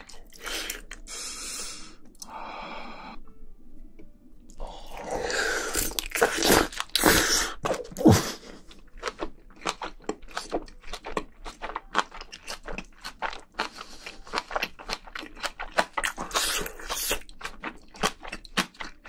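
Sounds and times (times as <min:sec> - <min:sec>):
crunchy chewing: 0:04.9 - 0:19.0.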